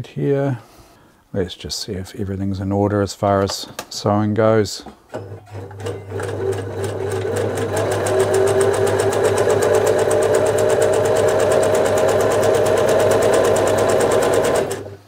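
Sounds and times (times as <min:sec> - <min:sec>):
sewing machine stitching: 0:05.1 - 0:15.0.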